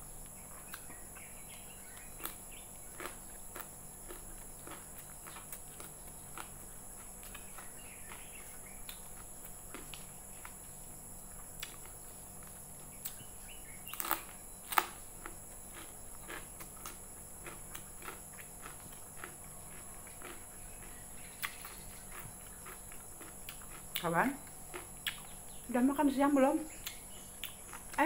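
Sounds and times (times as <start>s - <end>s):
person chewing food: 0.2s - 13.2s, 13.9s - 25.4s, 26.8s - 28.0s.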